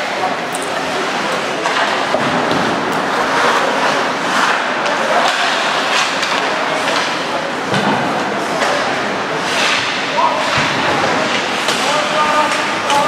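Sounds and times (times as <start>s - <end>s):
hockey sticks and puck clacking: 0.0s - 13.0s
skates scraping on ice: 3.0s - 7.1s.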